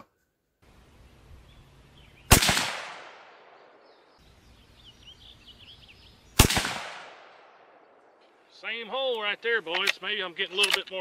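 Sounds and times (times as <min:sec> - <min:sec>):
rifle shots with echo: 0:02.3 - 0:03.8, 0:06.4 - 0:08.0.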